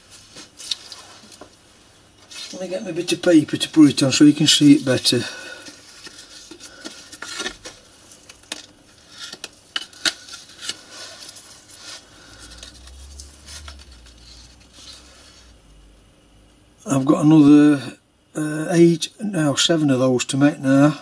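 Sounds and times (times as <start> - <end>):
paper rustling: 0.0 - 1.6, 2.2 - 15.5.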